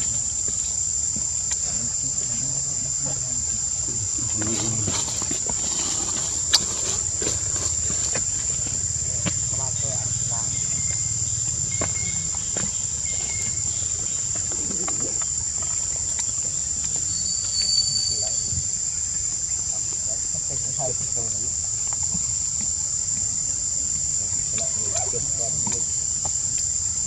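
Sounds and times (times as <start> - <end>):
high-pitched insect drone: 0.0 - 27.0
short faint peeps: 17.1 - 18.5.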